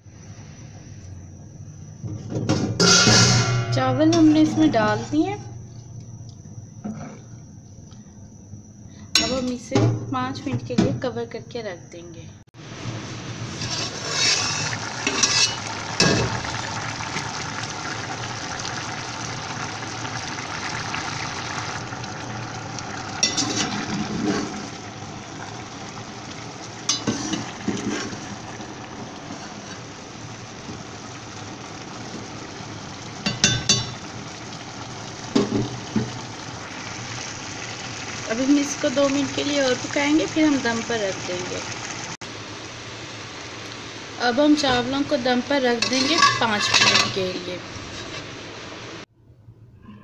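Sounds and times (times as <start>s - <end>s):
pot boiling with bubbling hiss: 0.0s - 7.6s, 12.5s - 49.1s
metal clinks against pot: 45.8s - 47.2s.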